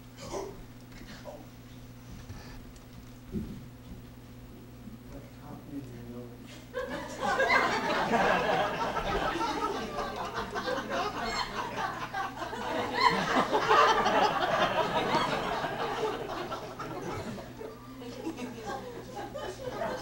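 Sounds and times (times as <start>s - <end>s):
theatre audience laughing: 6.8s - 20.0s.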